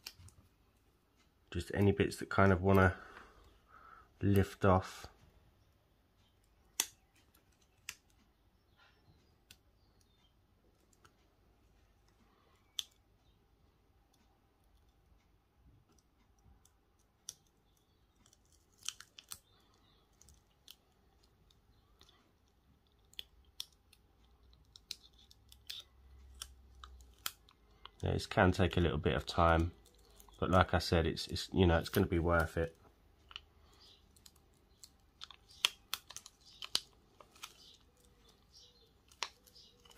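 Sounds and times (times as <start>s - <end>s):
vinyl peeling small clicks: 0.0s - 0.5s, 6.2s - 8.8s, 9.4s - 13.4s, 15.8s - 30.8s, 31.7s - 39.9s.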